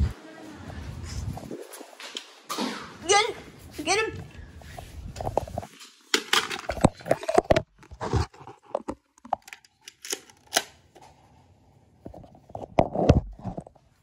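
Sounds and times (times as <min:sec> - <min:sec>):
camera rubbing against clothing: 0:04.5 - 0:05.7, 0:06.8 - 0:09.0.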